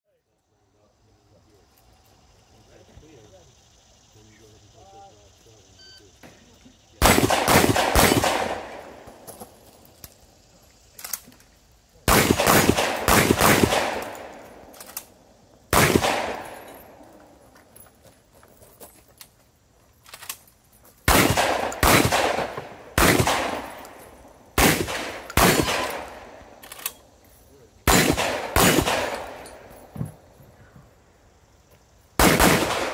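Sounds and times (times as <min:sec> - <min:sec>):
shotgun shots with echo: 0:07.0 - 0:09.2, 0:12.1 - 0:14.6, 0:15.7 - 0:17.0, 0:21.1 - 0:24.0, 0:24.6 - 0:26.4, 0:27.8 - 0:29.7, 0:32.2 - 0:32.9.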